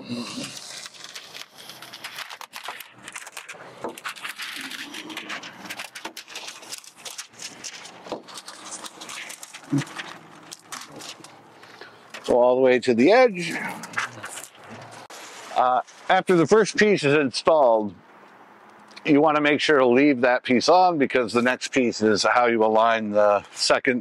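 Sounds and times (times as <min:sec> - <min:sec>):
plastic film crinkling: 0:00.1 - 0:12.4, 0:13.0 - 0:16.2.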